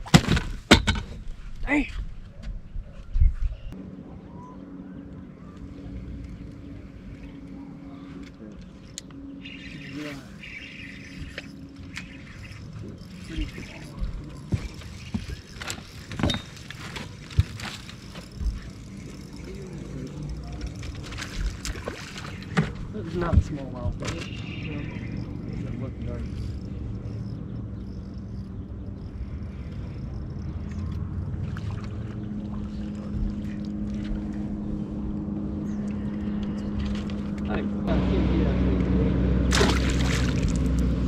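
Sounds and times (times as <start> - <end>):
boat motor humming: 3.7 - 41.0
footsteps on boat deck: 13.9 - 18.8
water splashes: 20.5 - 23.3, 31.3 - 34.3, 39.5 - 41.0.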